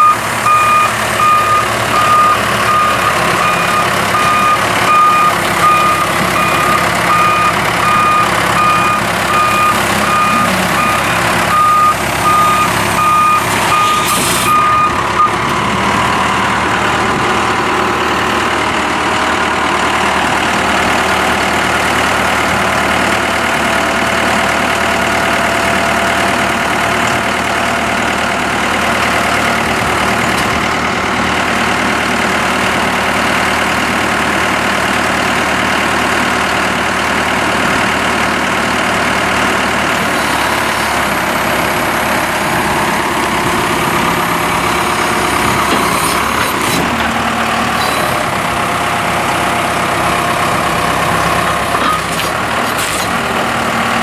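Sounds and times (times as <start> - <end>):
reversing alarm beeps: 0.0 - 15.4
diesel engine running: 0.0 - 54.0.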